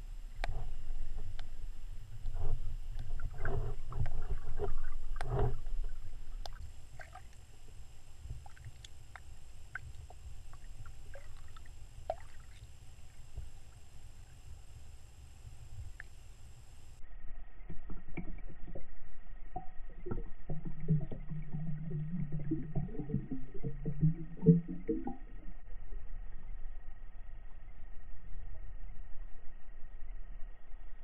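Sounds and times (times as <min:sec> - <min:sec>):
underwater low rumble: 0:00.0 - 0:31.0
faint ticks: 0:00.1 - 0:17.0.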